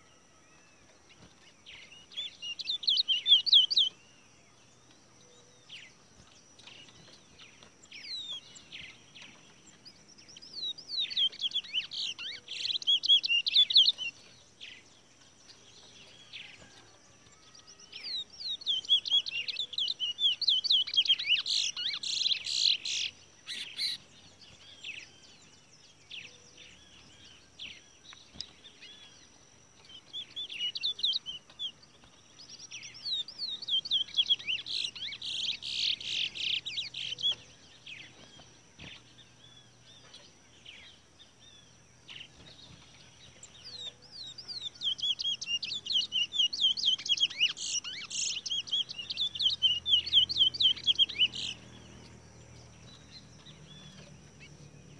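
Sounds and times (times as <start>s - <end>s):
finch chirping and warbling: 1.8s - 4.0s, 18.0s - 25.0s, 29.9s - 39.1s, 42.1s - 54.9s.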